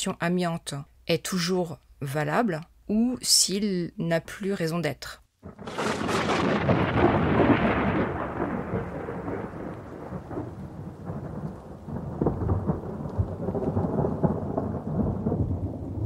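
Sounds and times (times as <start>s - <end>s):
thunder crack and rumble: 5.4s - 16.0s.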